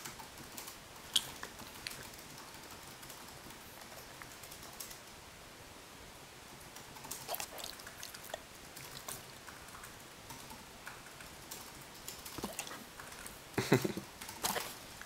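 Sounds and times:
dog mouth clicks and smacks: 0:00.0 - 0:05.0, 0:06.8 - 0:13.4.

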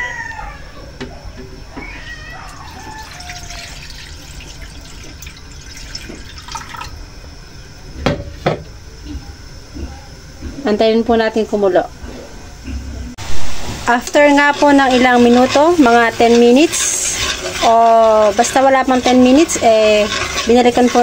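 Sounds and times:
water pouring into a metal wok: 0:02.7 - 0:06.9.

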